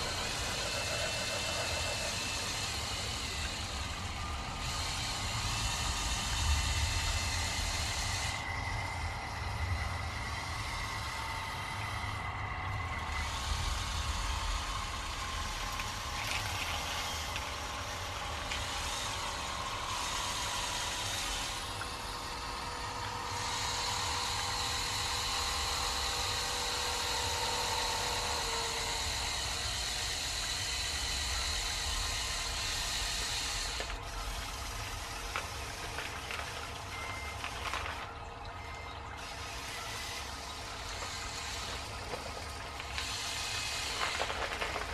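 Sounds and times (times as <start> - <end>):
small electric motors whining: 0.0 - 44.9
dried beans rattling: 39.8 - 44.9.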